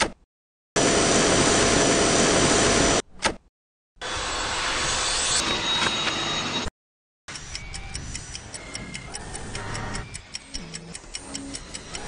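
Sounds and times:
click: 7.3 - 12.0.

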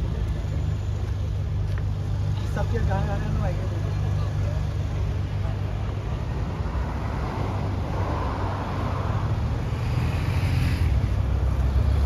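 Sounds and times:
road traffic rumble: 0.0 - 12.0
car tyre noise passing: 5.8 - 12.0.

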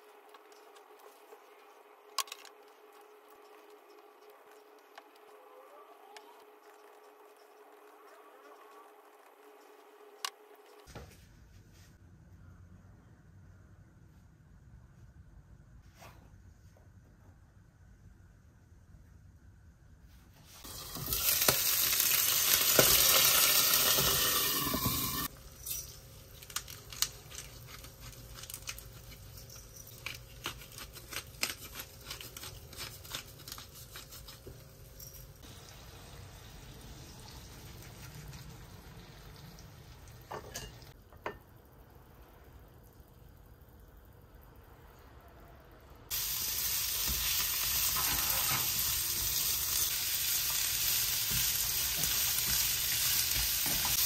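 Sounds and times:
food sizzling in a hot pan: 20.6 - 25.3, 35.4 - 37.8, 46.1 - 54.0.

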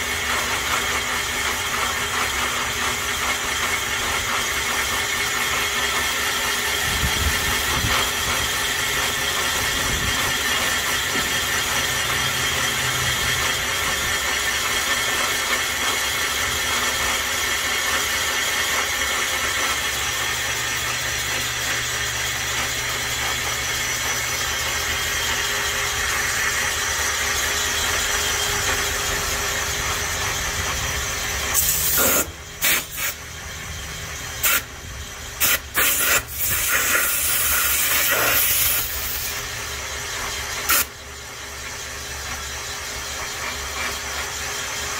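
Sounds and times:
boring bar machine whining: 0.0 - 44.9
loud hiss blasts: 35.4 - 39.3.

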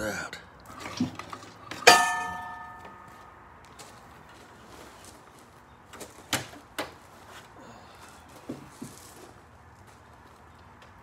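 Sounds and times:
ringing clang: 1.8 - 3.2.

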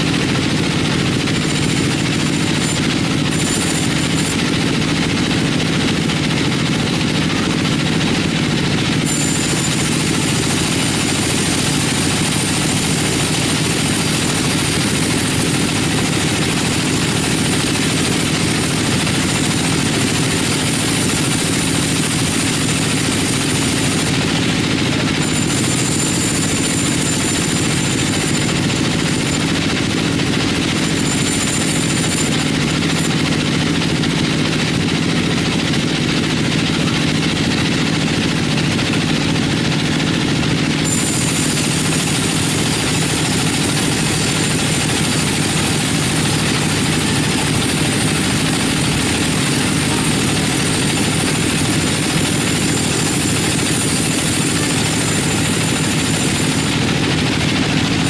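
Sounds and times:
bandsaw mill sawing log: 0.0 - 58.0
thin high whine: 9.0 - 12.8, 25.2 - 33.3.

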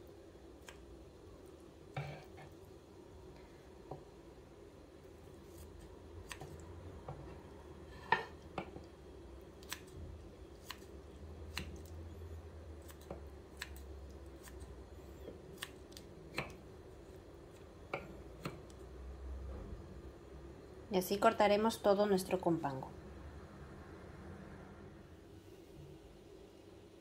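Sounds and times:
scissors snipping sausage: 9.5 - 12.0, 12.8 - 14.8, 15.4 - 16.6.

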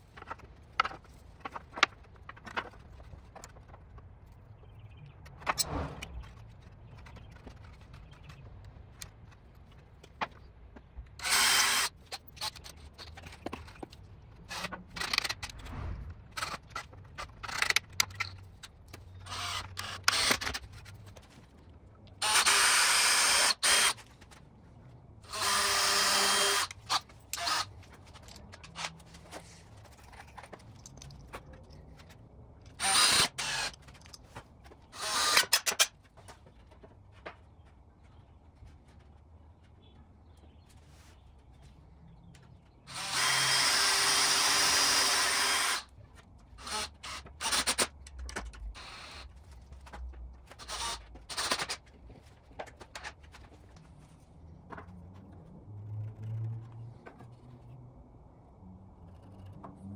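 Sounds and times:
cordless drill bursts: 11.2 - 12.0, 22.2 - 24.0, 25.3 - 27.7, 32.7 - 33.8, 35.0 - 35.8, 42.9 - 45.9, 46.6 - 47.9, 50.6 - 51.8.

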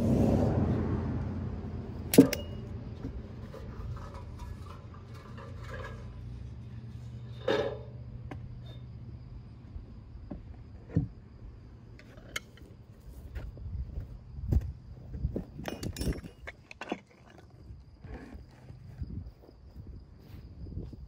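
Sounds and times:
knocks and metallic clinks: 2.1 - 6.2, 15.5 - 17.4.

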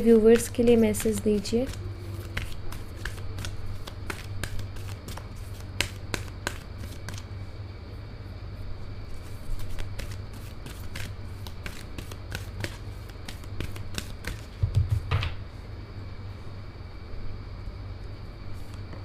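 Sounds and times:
cards being shuffled: 0.0 - 7.3, 9.2 - 15.1.

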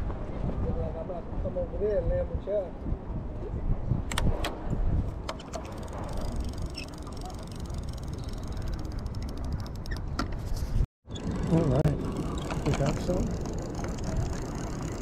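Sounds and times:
wind rumble on microphone: 0.0 - 15.0
fishing reel ticking: 5.4 - 10.0, 11.3 - 15.0.

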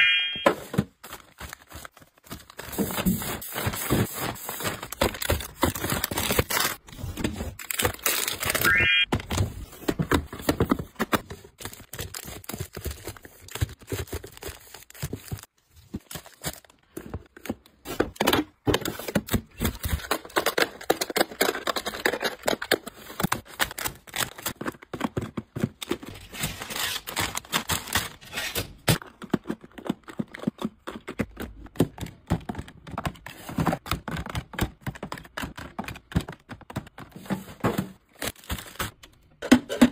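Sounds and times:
plastic packs crinkling: 0.7 - 9.4, 10.2 - 31.4, 38.0 - 39.3.

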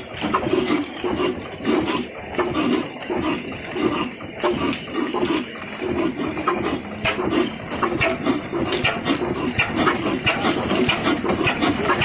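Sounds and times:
diesel engine knocking slowly: 0.0 - 12.0.

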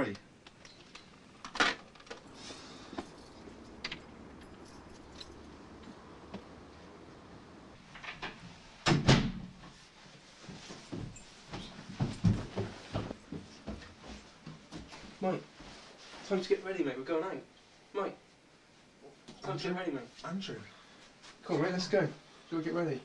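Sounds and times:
footfalls on stairs: 10.5 - 15.0.

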